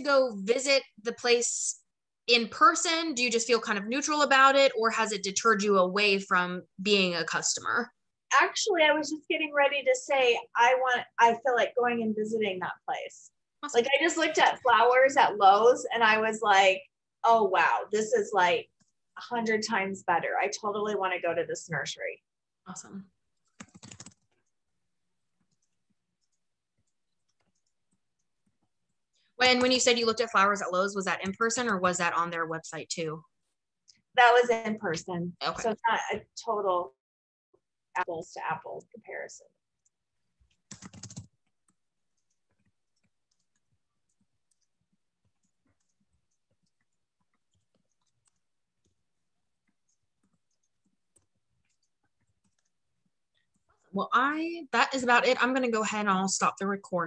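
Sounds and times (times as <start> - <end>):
computer mouse clicks: 23.4 - 24.6, 25.4 - 30.0, 39.8 - 49.0, 49.6 - 53.7.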